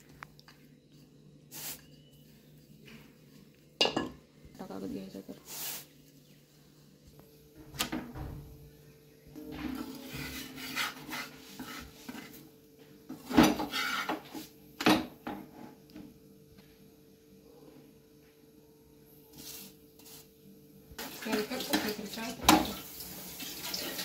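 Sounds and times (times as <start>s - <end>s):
rustling and scraping with spatula: 5.2s - 6.2s, 9.3s - 15.9s, 19.1s - 20.4s.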